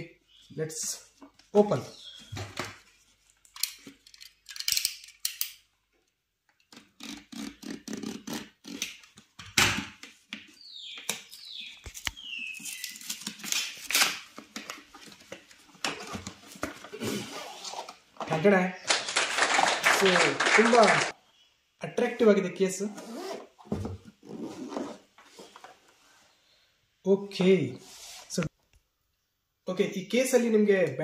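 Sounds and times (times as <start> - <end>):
cardboard and plastic rustling: 12.0 - 18.5.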